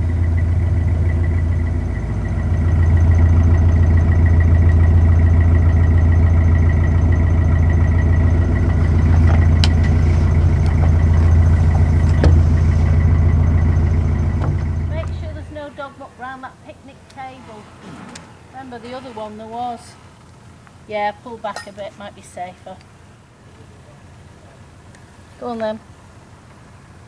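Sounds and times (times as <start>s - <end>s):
boat diesel engine drone: 0.0s - 27.0s.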